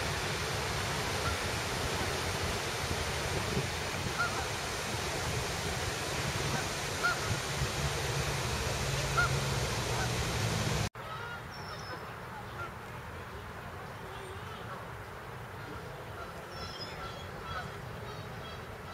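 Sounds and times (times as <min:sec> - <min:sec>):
steady rushing noise: 0:00.0 - 0:10.9
waterfowl honking: 0:00.0 - 0:12.7, 0:15.6 - 0:18.9.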